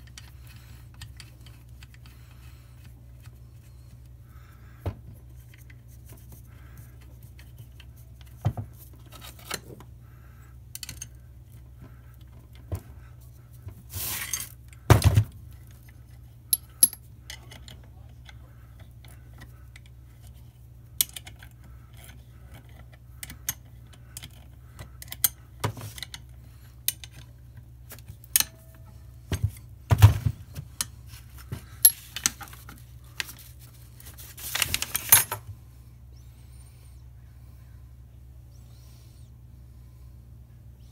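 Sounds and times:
steady low hum: 0.0 - 40.9
metal clinks and knocks: 16.5 - 17.6.

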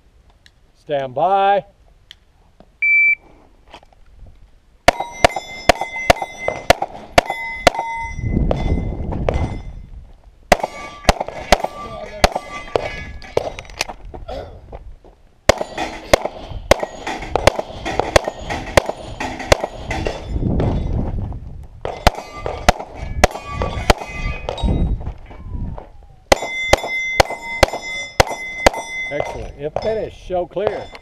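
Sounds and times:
struck steel ringing: 4.9 - 9.9, 10.5 - 13.8, 15.5 - 21.1, 21.8 - 25.5, 26.3 - 31.0
pistol firing rapid shots: 15.5 - 19.8.

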